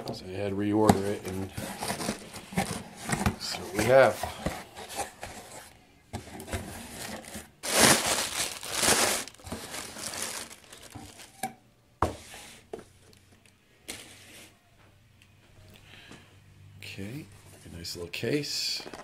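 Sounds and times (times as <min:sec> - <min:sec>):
plastic packing crinkling: 0:01.7 - 0:02.8, 0:07.0 - 0:11.4.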